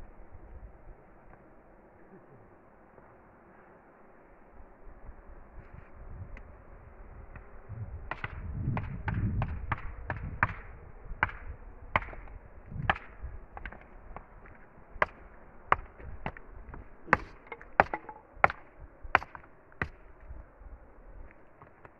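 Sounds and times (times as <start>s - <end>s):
stone knocks: 17.1s - 18.6s.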